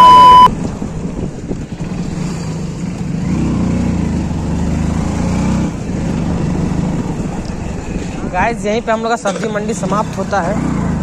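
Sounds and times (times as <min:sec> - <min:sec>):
loud steady beep: 0:00.0 - 0:00.5.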